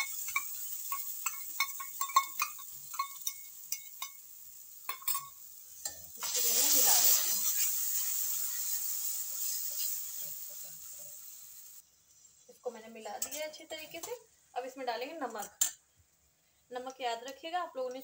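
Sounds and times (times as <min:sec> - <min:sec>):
spoon scraping and clinking on pan: 0:00.0 - 0:04.2, 0:04.8 - 0:06.1, 0:13.1 - 0:14.2
loud sizzle in hot oil: 0:00.0 - 0:15.7.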